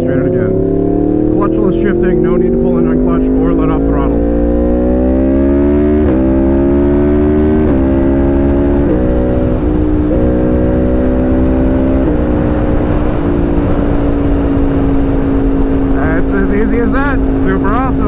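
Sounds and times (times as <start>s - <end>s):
motorcycle engine shifting up gears: 0.0s - 18.0s
wind noise: 7.6s - 18.0s.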